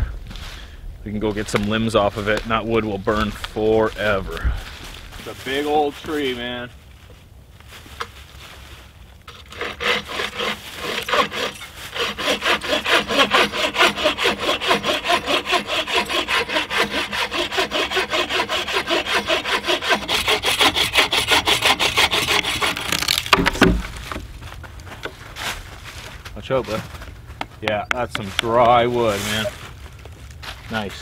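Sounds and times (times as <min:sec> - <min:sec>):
bow saw cutting wood: 0:09.3 - 0:24.2
sudden knock: 0:23.3 - 0:24.2.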